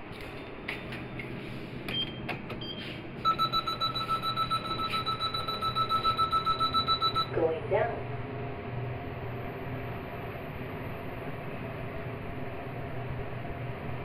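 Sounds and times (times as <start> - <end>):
elevator doors closing: 0.0 - 7.0
fast run of elevator beeps: 1.9 - 7.4.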